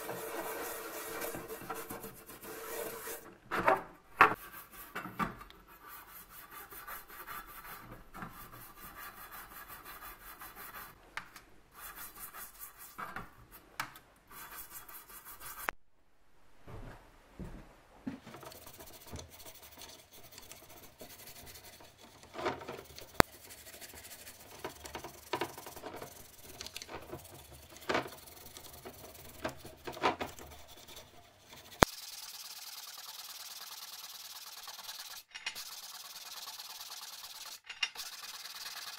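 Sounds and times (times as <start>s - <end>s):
toothbrush scrubbing hotplate: 0.0s - 3.3s, 18.4s - 38.9s
rag rubbing hotplate hiss: 23.0s - 38.9s.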